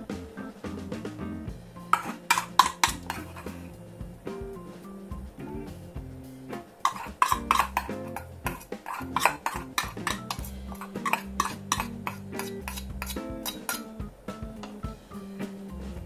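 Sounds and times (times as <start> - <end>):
metal spoon scraping steel bowl: 2.0 - 3.6, 6.8 - 13.9.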